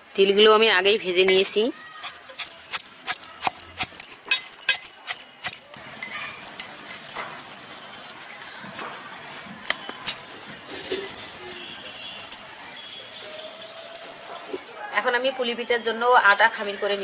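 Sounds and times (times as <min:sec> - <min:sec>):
iron pestle striking mortar: 0:01.3 - 0:06.5
scraping paste from mortar: 0:01.4 - 0:08.4.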